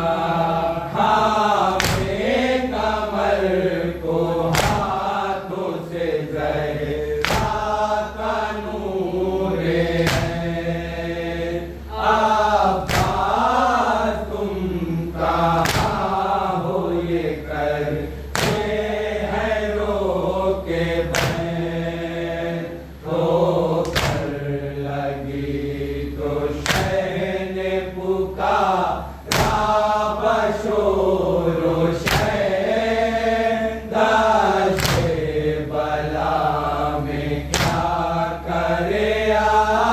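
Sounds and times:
men chanting a lament: 0.0s - 39.9s
hands slapping chests: 1.8s - 2.2s, 4.5s - 5.0s, 7.2s - 7.8s, 10.0s - 10.4s, 12.9s - 13.4s, 15.6s - 16.0s, 18.3s - 18.7s, 21.1s - 21.5s, 23.8s - 24.3s, 26.6s - 27.0s, 29.3s - 29.7s, 32.0s - 32.4s, 34.7s - 35.2s, 37.5s - 37.9s.

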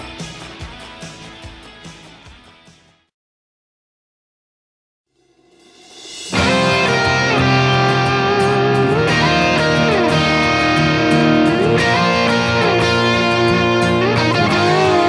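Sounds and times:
steady drum beat: 5.4s - 15.0s
electric guitar riff: 6.3s - 15.0s.

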